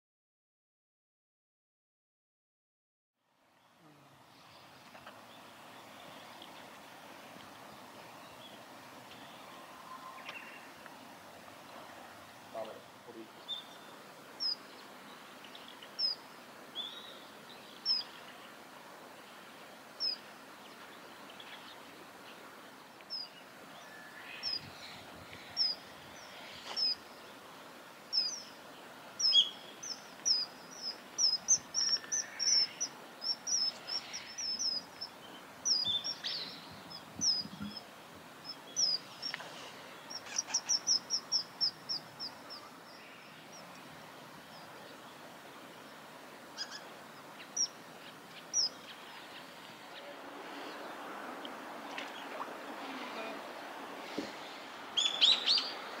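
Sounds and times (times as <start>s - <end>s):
kingfishers calling: 12.5s - 18.5s, 20.0s - 20.3s, 23.0s - 43.8s, 44.4s - 53.5s, 54.8s - 56.0s.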